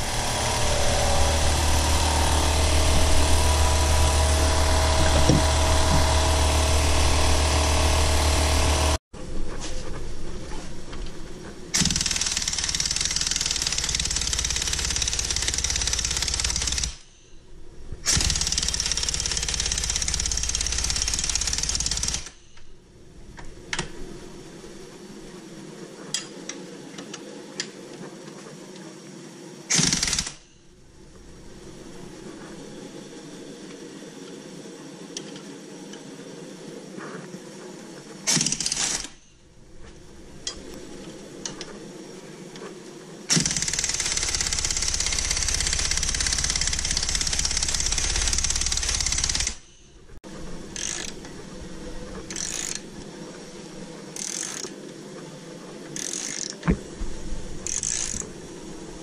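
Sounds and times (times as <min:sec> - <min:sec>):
impact wrench hammering: 0:00.0 - 0:09.0
loud machine noise with deep hum: 0:00.0 - 0:23.4.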